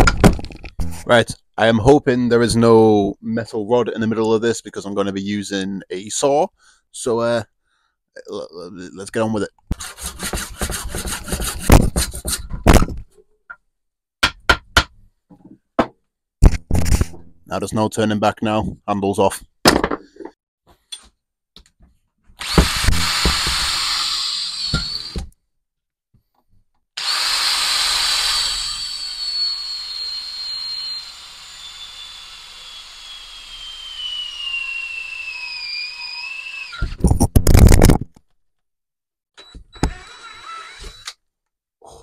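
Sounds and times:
cordless drill whining and grinding: 22.4s - 25.3s, 27.0s - 37.0s, 39.4s - 41.2s.

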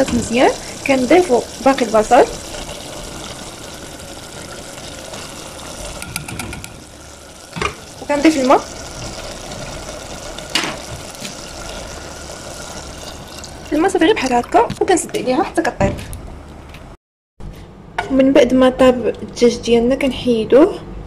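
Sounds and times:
food sizzling in a pot: 0.0s - 14.5s
water pouring into a pot: 0.0s - 15.3s.

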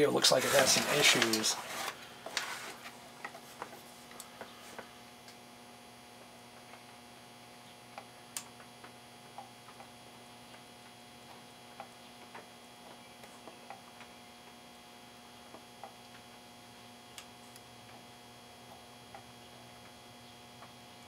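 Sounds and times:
faint steady hum: 0.0s - 21.0s
soldering ticks and clicks: 7.9s - 9.9s, 17.1s - 20.0s.

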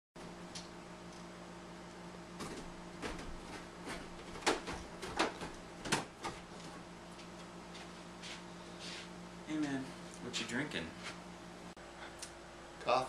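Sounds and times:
footsteps on wooden stairs: 2.4s - 7.9s.

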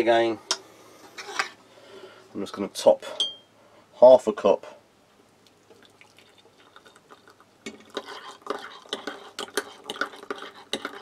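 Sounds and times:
water pouring into mug: 5.5s - 11.0s.

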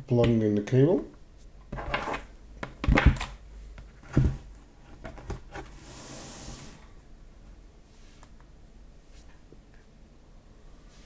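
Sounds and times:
rubbing hiss: 5.8s - 6.9s.

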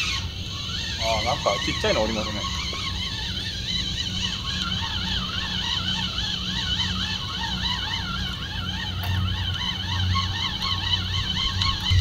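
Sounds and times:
steady low hum: 0.0s - 12.0s
siren-like warbling tone: 10.2s - 12.0s.

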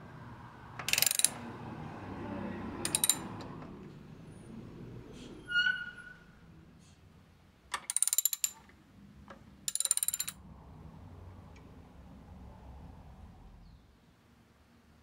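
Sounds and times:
ratchet wrench clicking: 0.8s - 1.4s, 2.8s - 3.3s, 7.7s - 8.6s, 9.7s - 10.4s.

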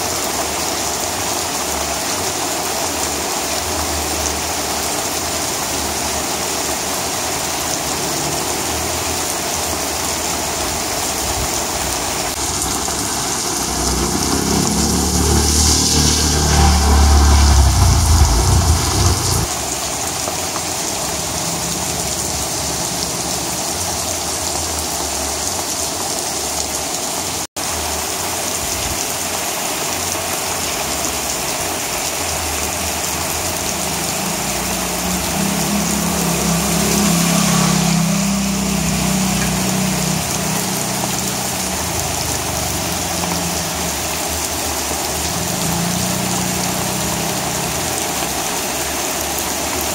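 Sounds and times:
heavy rain on concrete: 0.0s - 49.9s
low rumble: 12.4s - 19.5s.

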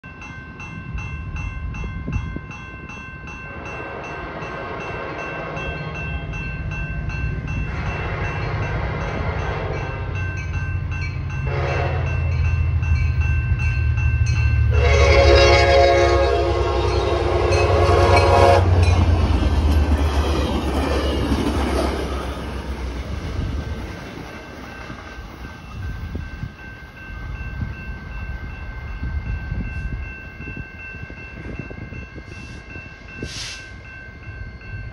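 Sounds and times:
crossing warning bell ringing: 0.0s - 34.9s
diesel locomotive rumble: 3.5s - 28.4s
locomotive horn blasts: 7.7s - 10.2s, 11.4s - 12.3s, 14.7s - 18.9s.

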